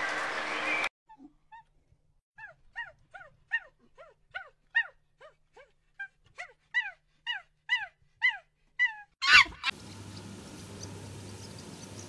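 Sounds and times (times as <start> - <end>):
animal squeaky calls: 8.8 - 9.8.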